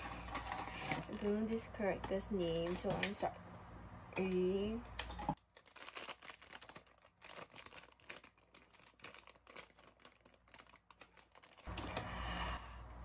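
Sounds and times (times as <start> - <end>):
wrapper crinkling and rustling: 4.9 - 12.0.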